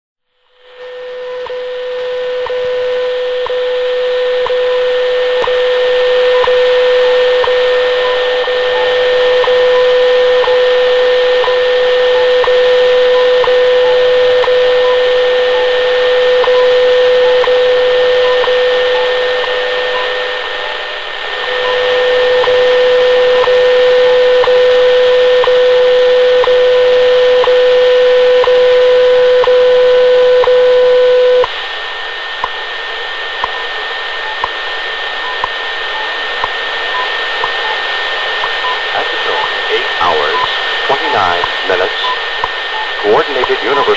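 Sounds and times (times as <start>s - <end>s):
radio static hiss: 0.5s - 43.9s
faint radio beeps: 0.8s - 20.8s, 35.2s - 36.3s, 36.9s - 43.9s
time signal tone with ticks: 0.9s - 5.7s, 6.3s - 20.8s, 21.5s - 31.5s, 32.4s - 32.6s, 34.2s - 34.6s, 35.2s - 37.8s, 38.4s - 43.9s.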